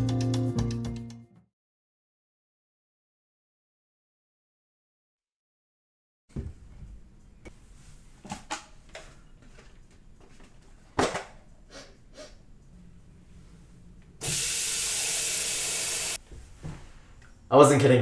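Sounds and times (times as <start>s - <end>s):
tap water running into kettle: 14.2s - 16.2s.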